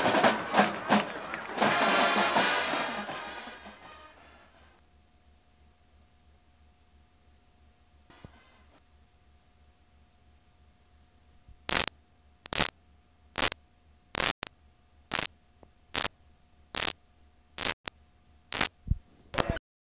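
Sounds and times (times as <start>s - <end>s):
static hiss bursts: 11.6s - 12.7s, 13.4s - 14.5s, 16.7s - 17.0s, 17.6s - 17.9s, 18.5s - 19.6s.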